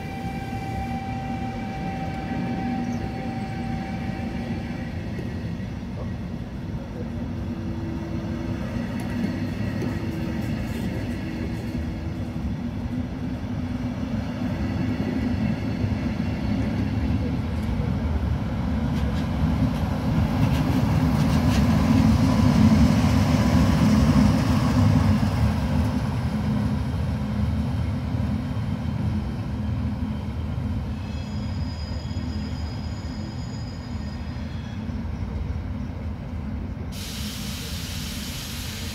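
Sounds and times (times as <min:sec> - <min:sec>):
faint high squeals: 0:00.0 - 0:06.2, 0:30.0 - 0:35.2
train wheels rumbling on track: 0:00.0 - 0:38.9
hiss: 0:36.9 - 0:38.9.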